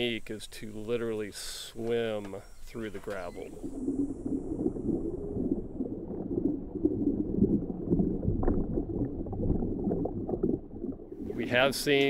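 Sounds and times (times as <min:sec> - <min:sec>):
bubbles gurgling underwater: 0:02.7 - 0:12.0.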